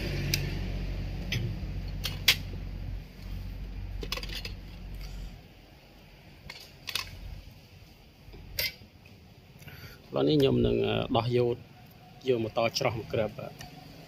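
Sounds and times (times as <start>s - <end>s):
low background rumble: 0.0s - 9.9s.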